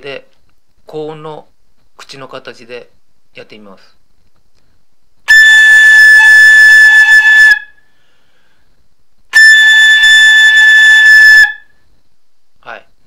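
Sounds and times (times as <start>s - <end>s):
flute headjoint high notes: 5.3s - 7.9s, 9.4s - 11.8s
breath noise: 7.8s - 8.9s.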